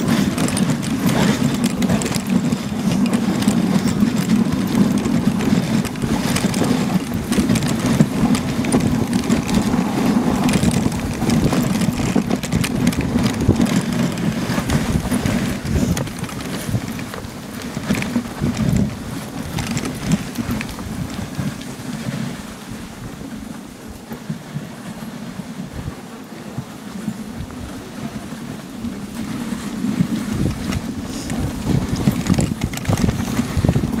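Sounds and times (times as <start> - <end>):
sled and harness rattling: 0.0 - 34.0
sled runners hissing on snow: 0.0 - 34.0
wind on microphone: 0.0 - 34.0.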